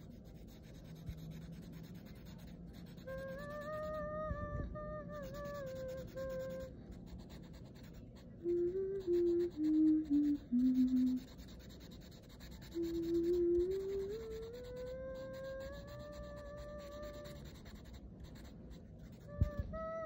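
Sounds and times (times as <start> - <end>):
marker scratching on paper: 0.0 - 3.9, 5.2 - 8.3, 11.1 - 19.7.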